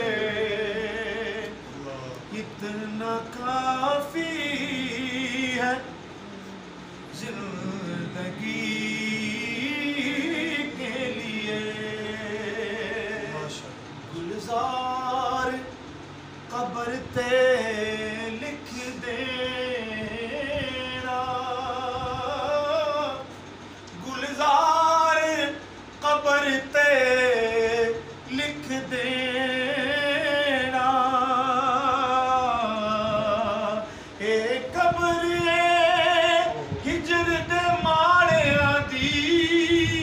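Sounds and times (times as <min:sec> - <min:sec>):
man singing unaccompanied: 0:00.0 - 0:06.2, 0:07.1 - 0:40.0
singer breathing: 0:33.8 - 0:34.2.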